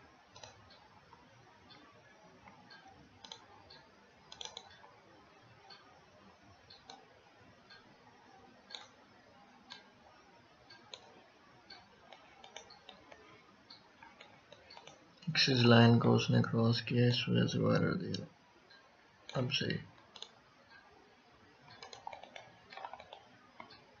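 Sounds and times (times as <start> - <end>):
room hiss: 0.0 - 24.0
computer mouse clicks: 0.3 - 1.8, 2.4 - 5.8, 6.6 - 7.1, 8.7 - 10.0, 10.7 - 15.4, 19.2 - 20.8, 21.7 - 24.0.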